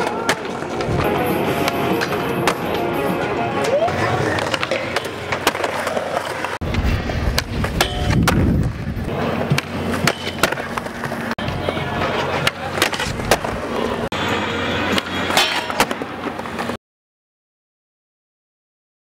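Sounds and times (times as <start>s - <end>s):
skateboard wheels rolling on concrete: 0.0s - 16.8s
skateboard clacks: 3.6s - 14.0s.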